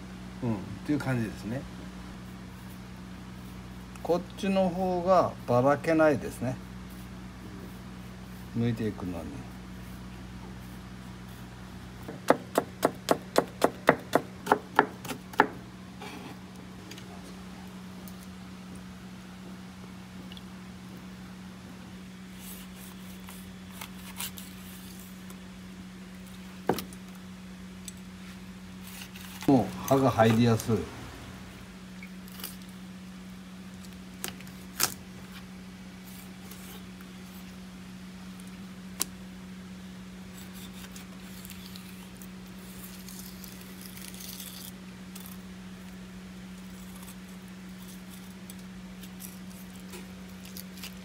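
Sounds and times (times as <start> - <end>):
low hum: 15.5 - 51.0.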